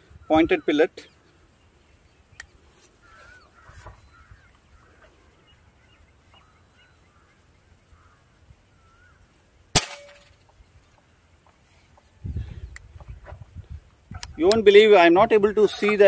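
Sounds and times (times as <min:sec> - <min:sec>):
air rifle shot: 0:09.8 - 0:10.4.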